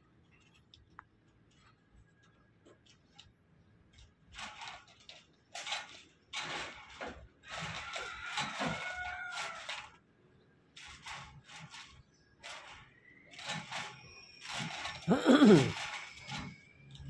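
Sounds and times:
rooster crowing: 7.9s - 9.7s
chain-link fence rattling: 10.8s - 17.0s.

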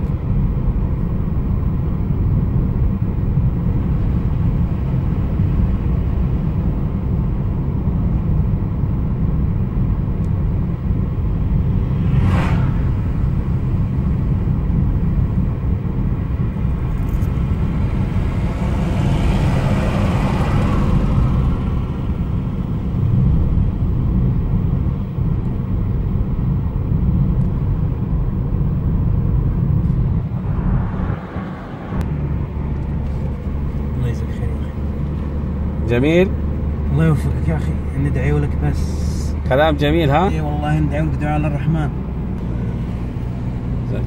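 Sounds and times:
car cabin road and engine rumble: 0.0s - 44.0s
rushing noise: 11.4s - 15.2s, 28.8s - 34.0s.

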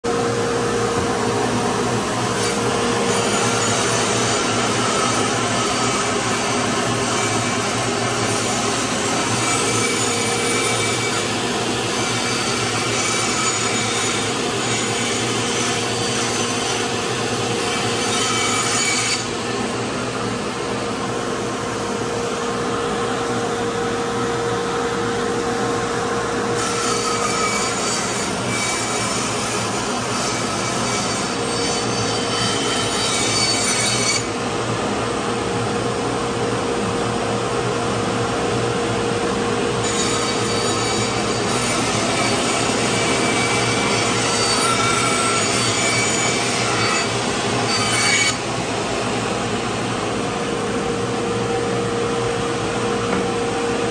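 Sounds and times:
band saw cutting wood: 0.6s - 21.0s, 26.5s - 34.4s, 39.8s - 49.6s.

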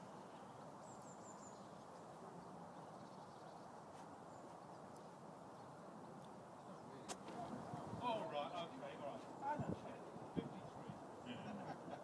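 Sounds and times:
faint outdoor background noise: 0.0s - 12.0s.

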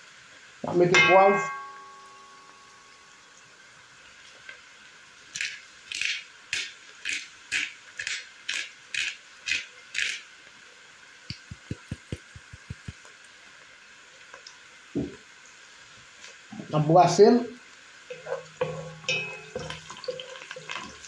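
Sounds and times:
pepper grinder scratchy bursts: 5.3s - 10.2s
soft low taps: 11.3s - 13.0s.

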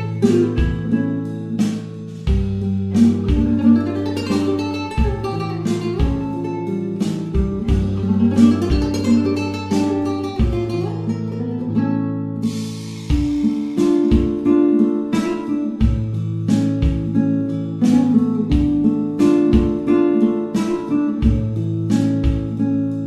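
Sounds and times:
plucked acoustic guitar: 0.0s - 23.0s
low bass line: 7.3s - 9.4s.

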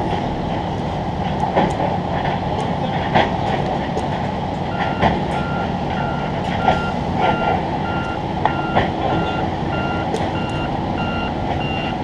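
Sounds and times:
heavy machinery rumble: 0.0s - 12.0s
backup alarm beeping: 4.7s - 12.0s.

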